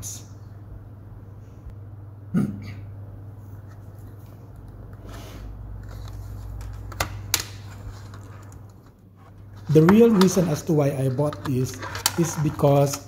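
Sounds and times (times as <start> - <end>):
low steady hum: 0.0 - 13.0
soft rustling handling noise: 3.4 - 7.0.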